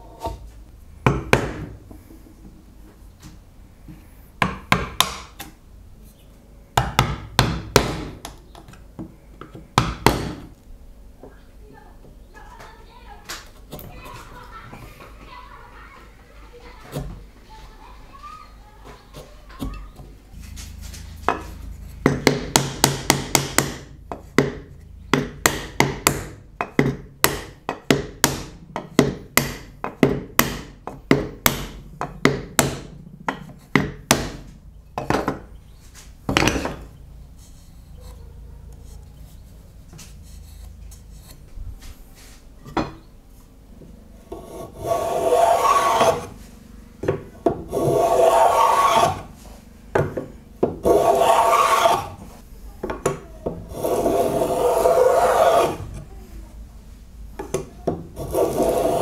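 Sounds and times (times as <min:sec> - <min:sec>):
sharp wooden knocks: 0:04.4 - 0:05.4, 0:06.8 - 0:08.4, 0:09.4 - 0:10.5, 0:22.0 - 0:35.5
hand file rasping on wood: 0:44.3 - 0:46.4, 0:47.7 - 0:49.3, 0:50.8 - 0:52.2, 0:53.7 - 0:56.0, 0:58.2 - 0:59.0.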